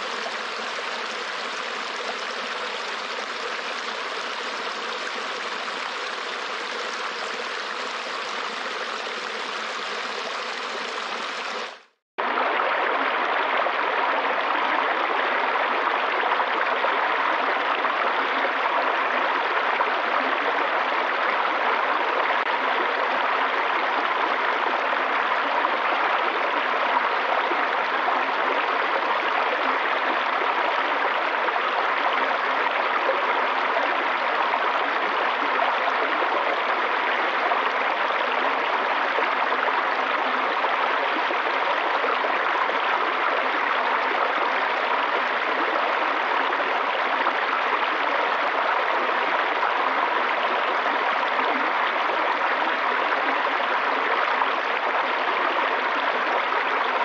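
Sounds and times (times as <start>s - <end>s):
stream running over rocks: 0.0s - 13.8s.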